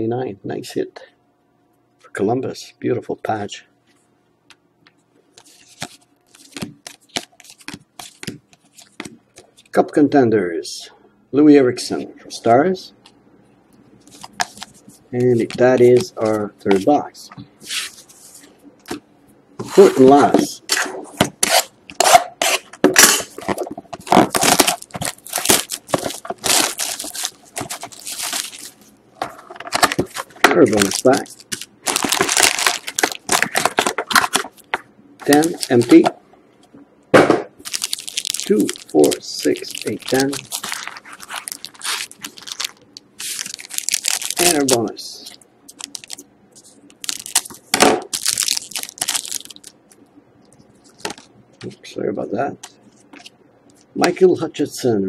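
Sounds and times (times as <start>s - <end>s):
plastic wrap tearing and crinkling: 21.4s - 28.9s, 29.6s - 36.0s, 37.6s - 44.9s, 45.7s - 46.2s, 46.9s - 50.0s.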